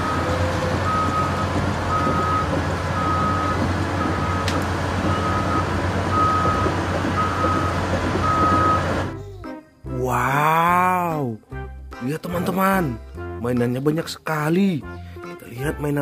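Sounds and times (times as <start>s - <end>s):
beeping alarm: 0.0s - 4.5s, 5.1s - 8.9s
diesel engine running: 0.0s - 9.2s.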